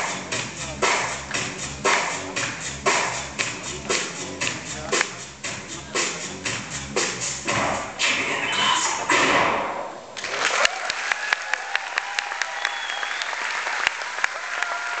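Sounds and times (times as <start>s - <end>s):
dance music: 0.0s - 10.0s
audience applauding: 10.2s - 15.0s.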